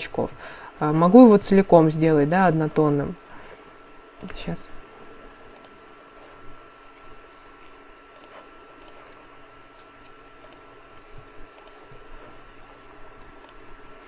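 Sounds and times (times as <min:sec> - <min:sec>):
computer mouse clicks: 0:05.6 - 0:05.8, 0:08.1 - 0:10.7, 0:11.5 - 0:12.1, 0:13.4 - 0:14.0.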